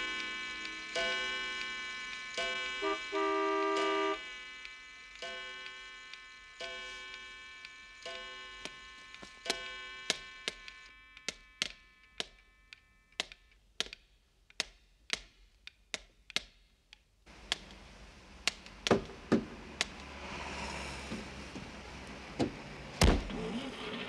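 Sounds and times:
clock chime ringing: 0.0s - 4.6s, 5.2s - 10.4s
steady hiss: 0.0s - 10.9s
pendulum clock ticking: 0.0s - 12.4s.

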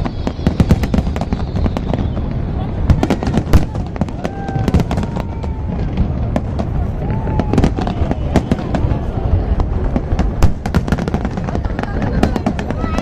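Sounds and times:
fireworks bangs and crackles: 0.0s - 13.0s
loud firework bang: 0.0s - 13.0s.

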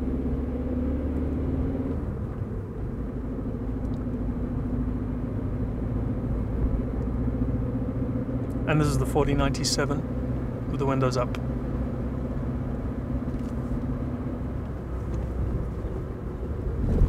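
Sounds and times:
car engine drone: 0.0s - 17.0s
road rumble: 0.0s - 17.0s.

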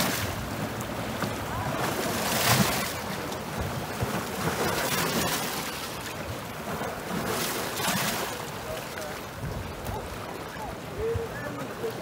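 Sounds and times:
waves washing against rocks: 0.0s - 12.0s
wind buffeting microphone: 9.3s - 11.6s.

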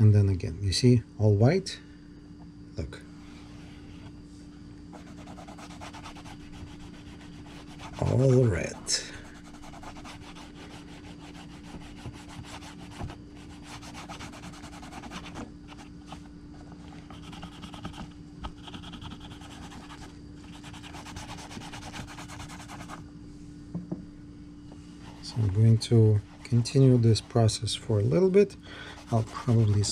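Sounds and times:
rubbing strokes on leather: 4.9s - 16.3s, 16.9s - 23.0s, 25.0s - 27.6s, 28.9s - 29.9s.

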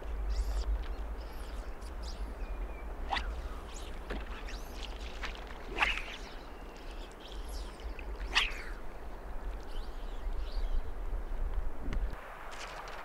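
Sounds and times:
steady low rumble: 0.0s - 12.2s
faint bird chirps: 0.2s - 8.8s
sharp bird calls: 0.2s - 8.8s.

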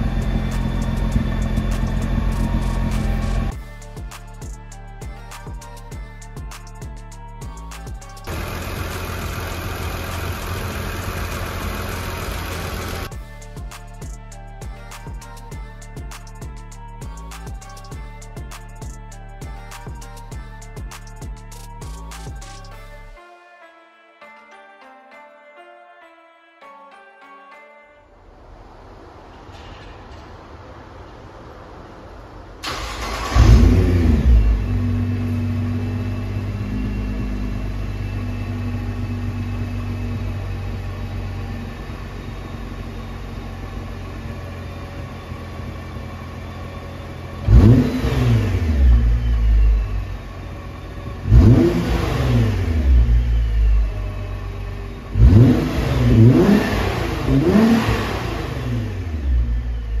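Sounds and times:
engine throttle blips: 0.0s - 3.6s, 7.0s - 13.4s, 28.6s - 60.0s
car engine starting and idling: 0.0s - 23.1s, 28.2s - 60.0s.

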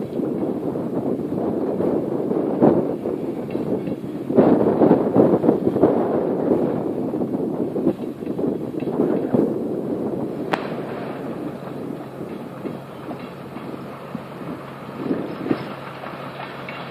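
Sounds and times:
train wheels clattering over rail joints: 3.3s - 4.2s, 10.5s - 16.9s.

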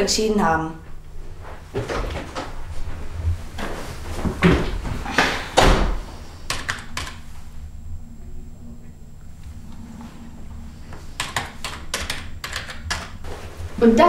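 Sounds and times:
thumps and rustles of movement: 1.4s - 6.2s
computer keyboard clicks: 6.5s - 7.2s, 11.2s - 13.2s.

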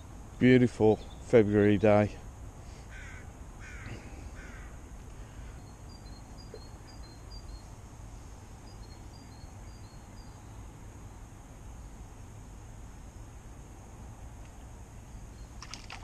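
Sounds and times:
crow cawing: 2.9s - 5.6s
small bird chirping: 5.2s - 7.8s, 8.6s - 10.7s.

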